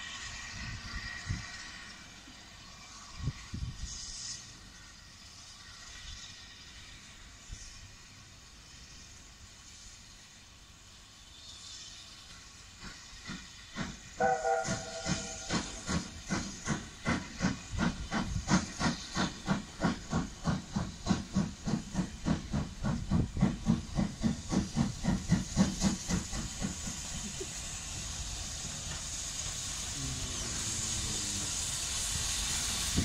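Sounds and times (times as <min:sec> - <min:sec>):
steam locomotive chuffing: 0:00.0 - 0:33.0
steam locomotive whistle: 0:14.2 - 0:15.8.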